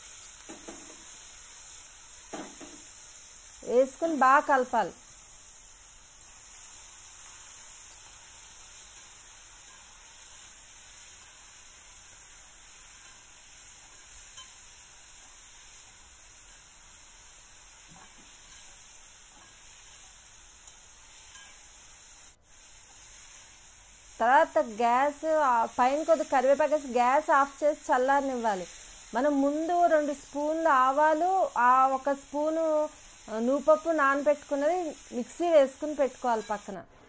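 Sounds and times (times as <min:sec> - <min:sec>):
food sizzling in oil: 0:00.0 - 0:36.8
metal spatula scraping wok: 0:18.0 - 0:22.0, 0:35.5 - 0:36.7.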